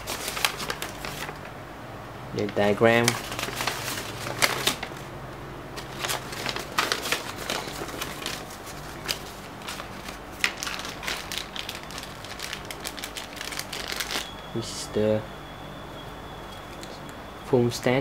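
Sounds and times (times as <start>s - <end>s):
paper and plastic bag rustling: 0.0s - 1.5s, 2.4s - 5.1s, 5.8s - 14.4s.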